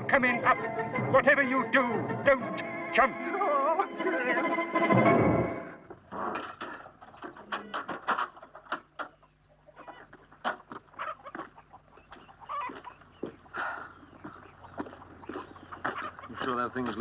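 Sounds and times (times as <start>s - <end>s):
chickens clucking: 6.0s - 17.0s.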